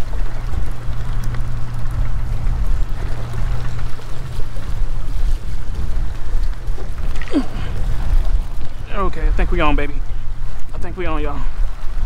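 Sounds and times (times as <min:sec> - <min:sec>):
steady low hum: 0:00.0 - 0:12.0
waves lapping against rocks: 0:00.0 - 0:12.0
wind buffeting microphone: 0:00.0 - 0:12.0.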